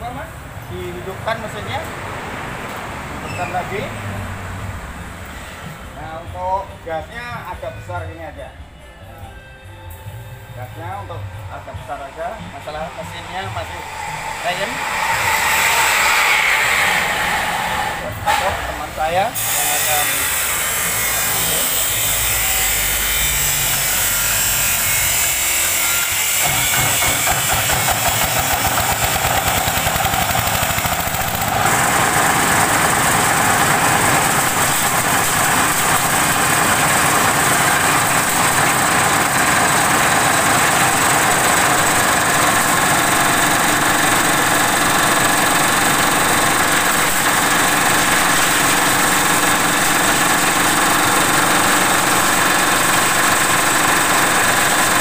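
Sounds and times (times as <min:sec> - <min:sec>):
small engine running: 0:13.8 - 0:18.4, 0:24.8 - 0:55.0.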